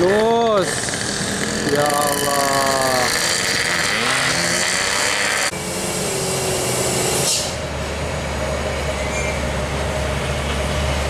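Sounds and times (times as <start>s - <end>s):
diesel truck engine droning: 0.0s - 11.0s
motorbike engines: 0.0s - 11.0s
short hiss: 7.2s - 7.6s.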